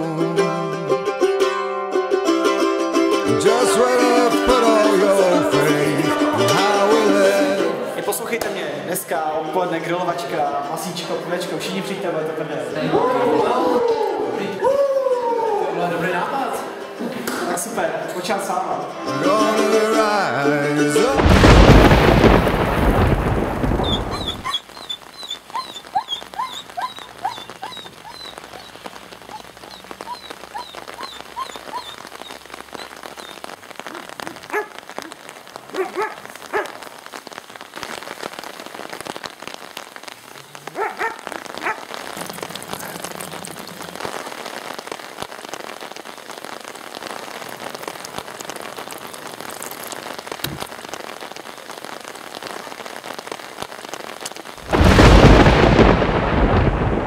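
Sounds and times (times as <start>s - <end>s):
steady rain falling: 0.0s - 57.0s
thunder rumble: 21.2s - 24.6s, 54.6s - 57.0s
dog barking: 24.1s - 28.7s, 33.9s - 35.1s, 35.7s - 36.8s, 40.7s - 41.9s.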